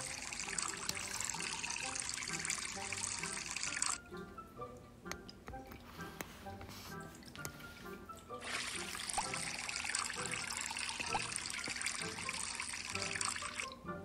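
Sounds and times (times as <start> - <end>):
water pouring into a glass: 0.0 - 4.2, 7.0 - 13.8
light background music: 0.0 - 14.0.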